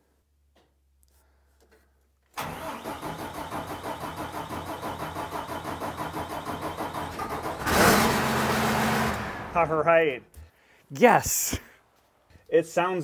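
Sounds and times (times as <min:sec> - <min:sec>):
diesel engine cranking and starting: 0:02.4 - 0:09.8.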